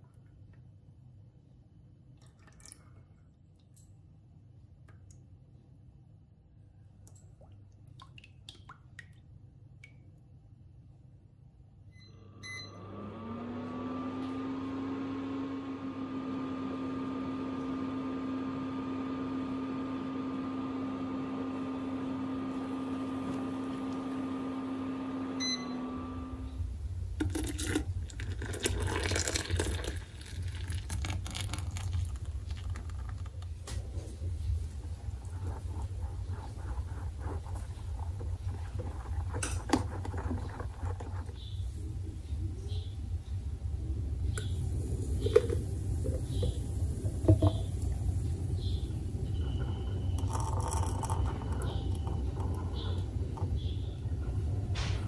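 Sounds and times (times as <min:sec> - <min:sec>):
kitchen appliance motor humming: 0:12.3 - 0:26.6, 0:44.4 - 0:53.8.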